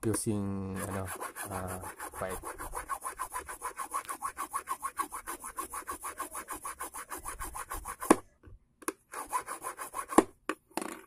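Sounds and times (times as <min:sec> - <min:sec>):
file scraping eyeglass arm: 0:00.7 - 0:08.2, 0:09.1 - 0:10.4.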